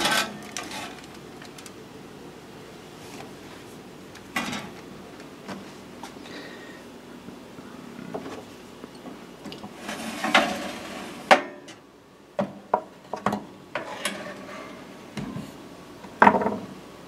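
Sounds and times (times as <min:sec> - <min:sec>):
metal baking tray scraping: 0:00.0 - 0:01.0, 0:09.8 - 0:11.3, 0:13.8 - 0:14.9.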